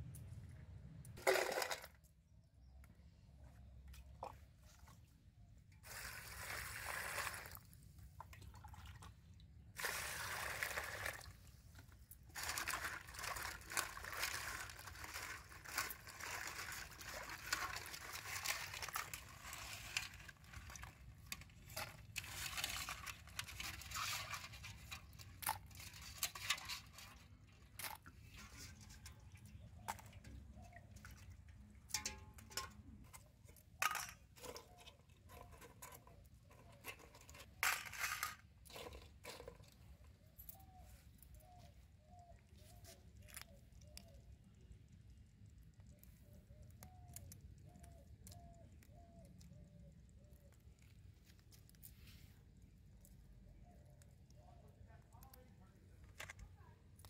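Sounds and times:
water poured into steel bowl: 5.8s - 11.5s.

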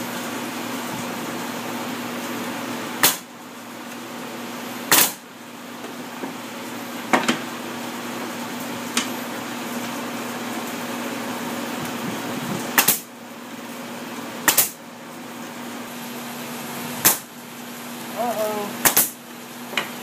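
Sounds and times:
steady hum: 0.0s - 20.0s
pneumatic nail gun shots: 3.0s - 3.3s, 4.9s - 5.2s, 12.8s - 13.1s, 14.4s - 14.8s, 17.0s - 17.3s, 18.8s - 19.2s.

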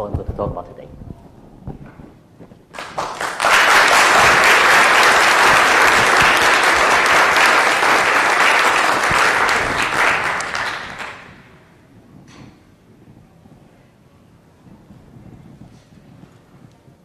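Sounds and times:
audience applauding: 2.7s - 11.5s.

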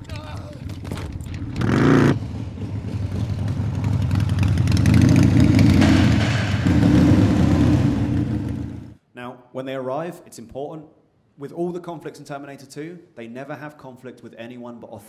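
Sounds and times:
motorcycle engine revving: 1.3s - 9.0s.

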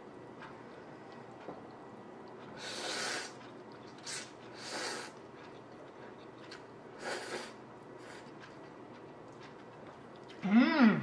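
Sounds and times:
person slurping noodles: 2.6s - 3.4s, 4.0s - 5.2s, 7.0s - 8.2s.

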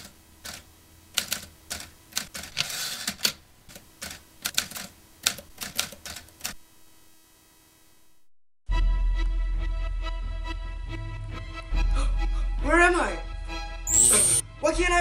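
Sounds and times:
typewriter keys clacking: 1.2s - 6.6s.

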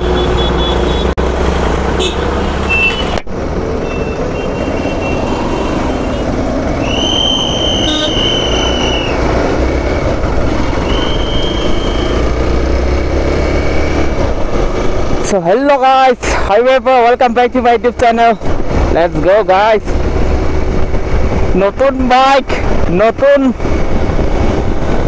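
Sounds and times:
vehicle horn honking: 0.0s - 1.1s, 2.0s - 3.1s, 3.8s - 6.2s, 7.3s - 8.8s
road noise: 0.0s - 25.0s.

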